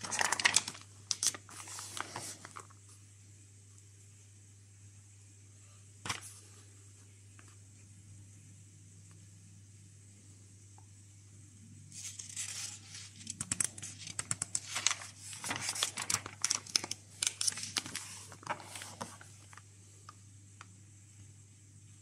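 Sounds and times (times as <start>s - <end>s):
paper pages rustling and crinkling: 0.0s - 2.9s, 6.1s - 6.4s, 11.9s - 19.7s.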